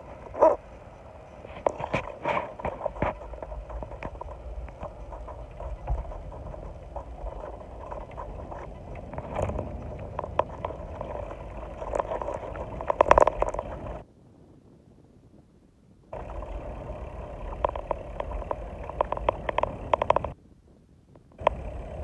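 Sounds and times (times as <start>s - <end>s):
vehicle road noise rumble: 0.0s - 14.0s, 16.1s - 20.4s, 21.3s - 22.0s
clicks and rattles: 1.4s - 14.0s, 16.2s - 20.4s.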